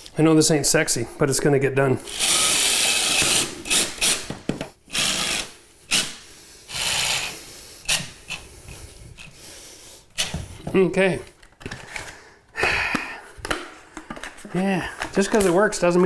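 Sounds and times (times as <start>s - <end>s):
impact driver driving screws: 2.1s - 8.5s.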